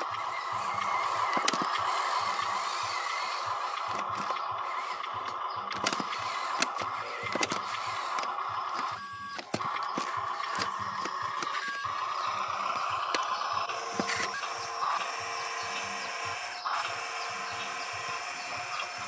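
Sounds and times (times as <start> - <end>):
electric motor and gearbox whining: 0.0 - 19.0
sharp clicks: 0.0 - 19.0.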